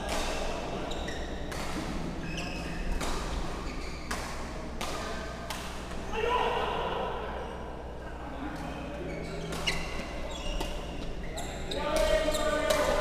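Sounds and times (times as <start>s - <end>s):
badminton racket hits: 0.0s - 6.0s, 9.4s - 13.0s.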